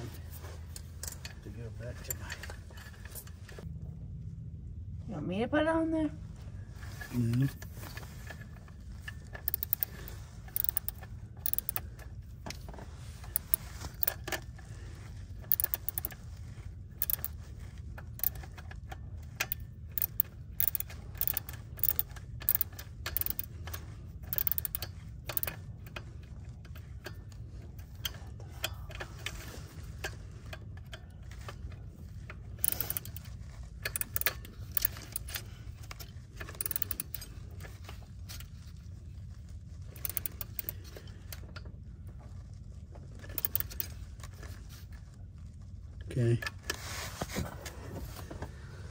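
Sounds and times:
steady low hum: 0.0 - 48.9
hand ratchet clicking: 9.2 - 12.1, 13.2 - 14.4, 15.4 - 16.2, 17.0 - 26.1, 32.6 - 38.4, 39.9 - 41.0, 43.2 - 44.0.

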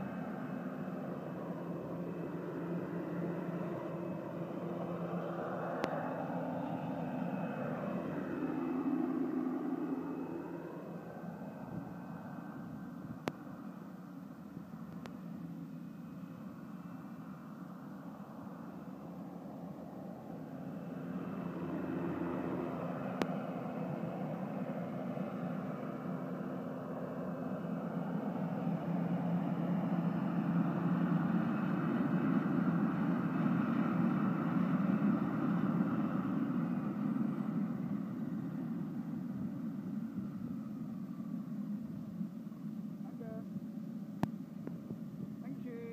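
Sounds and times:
model helicopter turbine whine: 0.0 - 45.9.

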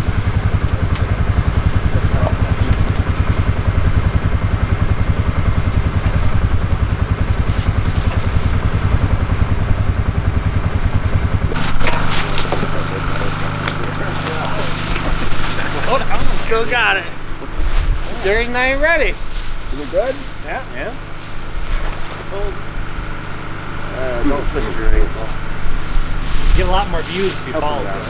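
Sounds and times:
small engine idling: 0.0 - 28.0
sharp clicks and cracks: 0.6 - 4.2, 11.5 - 15.7.

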